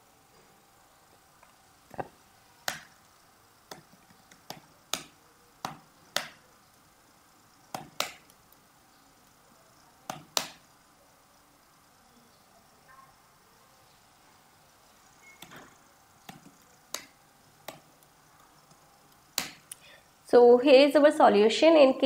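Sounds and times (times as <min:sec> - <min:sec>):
mouse buttons clicking: 0:07.7 - 0:08.4, 0:10.1 - 0:10.6, 0:15.2 - 0:18.0.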